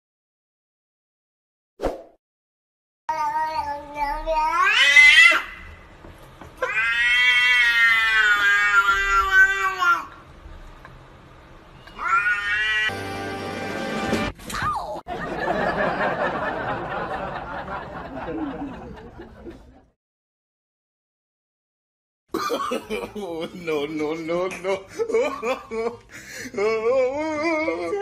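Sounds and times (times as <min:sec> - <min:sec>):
cat meowing: 0:06.6 - 0:10.1, 0:11.8 - 0:13.0.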